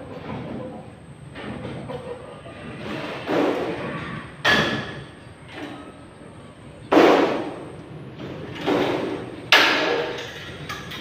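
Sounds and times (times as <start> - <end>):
thin metal sheet banging: 6.9 - 7.6, 8.6 - 11.0.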